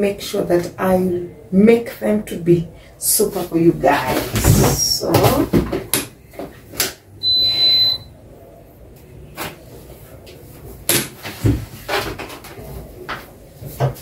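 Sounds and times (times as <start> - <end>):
high-pitched electronic beep: 7.2 - 8.1.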